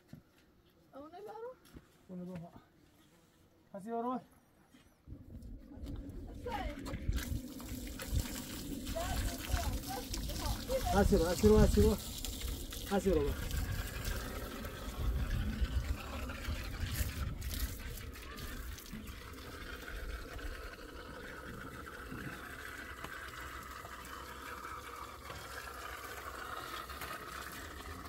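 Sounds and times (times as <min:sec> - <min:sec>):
hose water pouring and splashing: 0:05.8 - 0:28.0.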